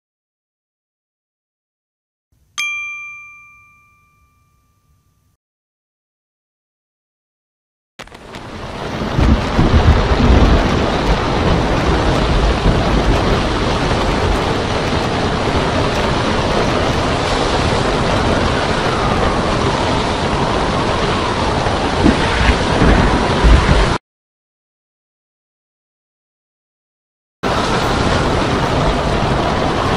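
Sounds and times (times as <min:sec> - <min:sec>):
surf crashing on rocks: 0:08.0 - 0:24.0, 0:27.4 - 0:29.9
wind blowing on microphone: 0:08.2 - 0:24.0.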